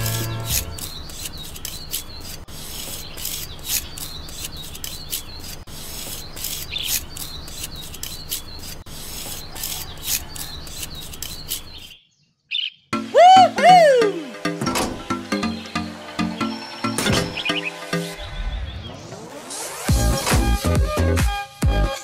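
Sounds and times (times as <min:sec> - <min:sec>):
trowel scraping wet concrete: 0:00.0 - 0:11.9.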